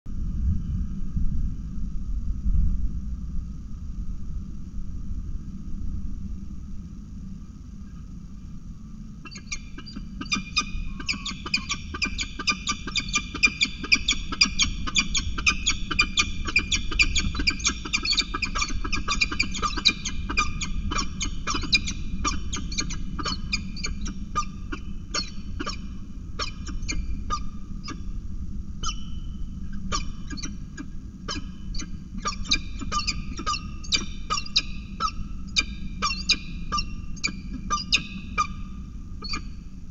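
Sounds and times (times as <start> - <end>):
wind rumble on microphone: 0.1 - 39.9
falcon calling harsh notes: 9.2 - 28.0, 29.8 - 39.5.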